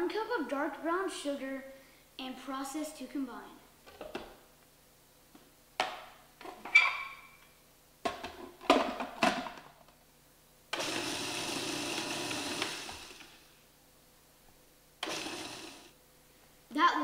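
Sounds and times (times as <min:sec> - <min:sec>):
plastic knocks and clatters: 0:08.0 - 0:09.8
food processor running: 0:10.8 - 0:13.5, 0:15.0 - 0:16.0.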